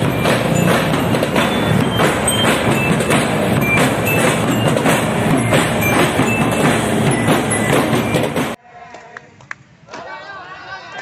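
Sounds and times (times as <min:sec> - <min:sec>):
high ringing notes: 0:00.0 - 0:08.6
marching drums: 0:00.0 - 0:08.6.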